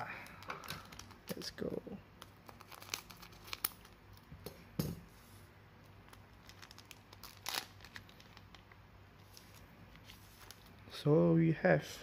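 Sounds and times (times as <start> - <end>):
foil wrapper crinkle: 2.4 - 4.0, 6.1 - 10.7.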